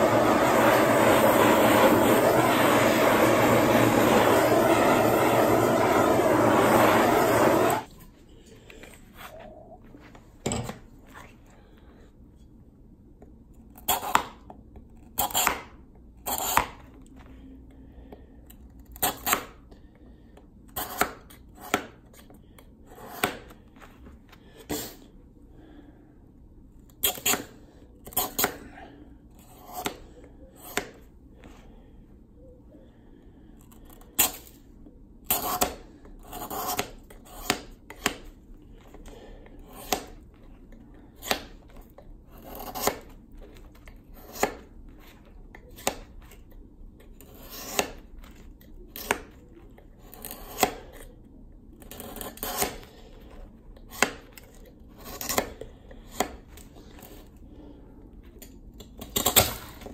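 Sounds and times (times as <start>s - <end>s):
knife scraping ice: 35.3s - 37.6s, 42.3s - 43.1s, 47.2s - 48.0s, 50.0s - 51.0s, 51.9s - 52.8s, 55.0s - 55.5s.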